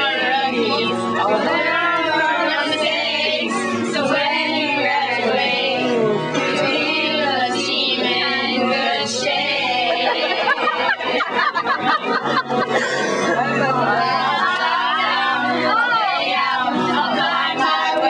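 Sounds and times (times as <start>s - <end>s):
women singing together: 0.0s - 12.6s, 13.4s - 18.0s.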